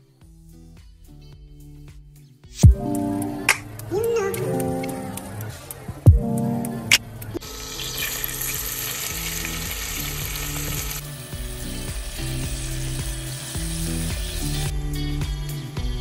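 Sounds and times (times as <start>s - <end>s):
onions sizzling in oil: 7.4s - 14.5s.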